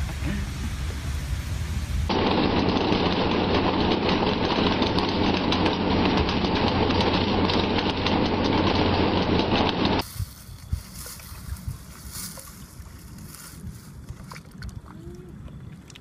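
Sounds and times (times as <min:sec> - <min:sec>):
rapid crackling and clicks: 0:02.1 - 0:10.0.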